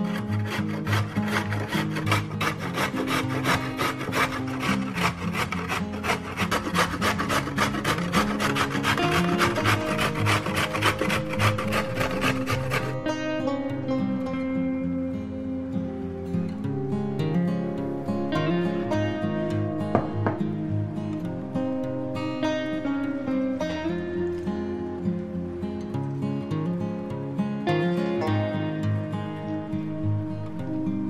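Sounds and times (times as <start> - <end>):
carrot grating on metal grater: 0.0 - 13.0.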